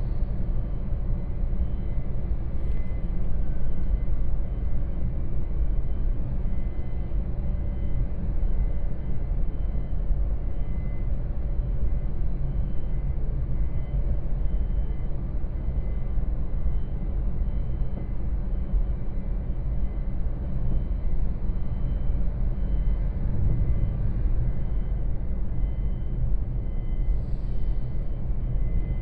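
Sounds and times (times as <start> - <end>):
faint high whine: 0.0 - 29.0
ferry deck rumble and hum: 0.0 - 29.0.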